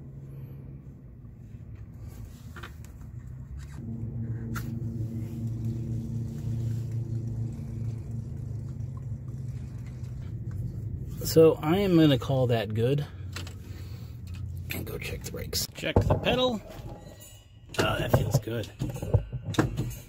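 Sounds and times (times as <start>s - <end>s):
low mechanical hum: 0.0s - 12.2s.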